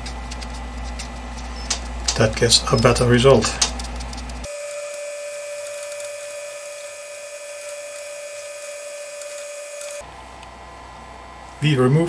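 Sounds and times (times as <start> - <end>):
lathe motor whine: 4.5 - 10.0.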